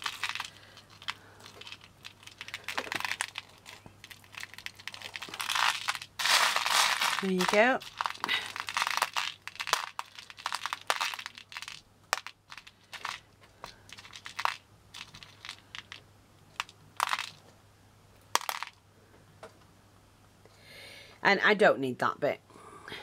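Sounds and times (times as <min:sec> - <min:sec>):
beads clicking and rattling: 0:00.0 - 0:17.4, 0:18.3 - 0:18.8.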